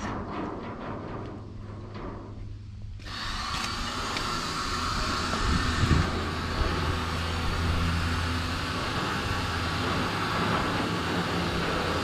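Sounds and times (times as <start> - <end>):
motor humming: 3.0 - 12.0.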